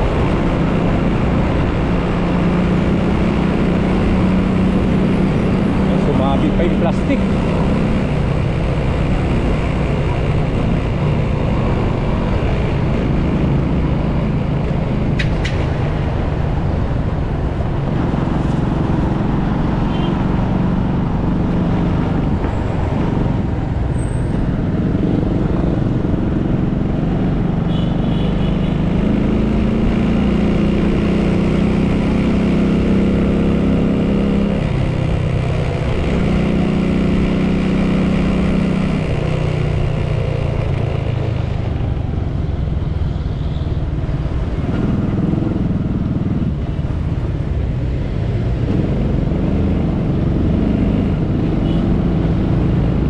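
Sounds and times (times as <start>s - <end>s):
road traffic: 0.0s - 53.0s.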